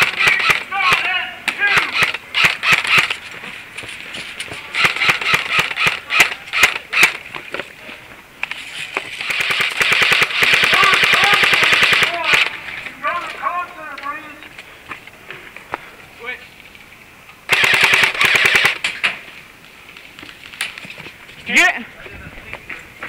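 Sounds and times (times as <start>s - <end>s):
people shouting: 0.0s - 2.9s, 10.5s - 12.6s
airsoft guns firing: 0.0s - 3.2s, 4.7s - 7.2s, 9.2s - 12.6s, 17.5s - 19.0s.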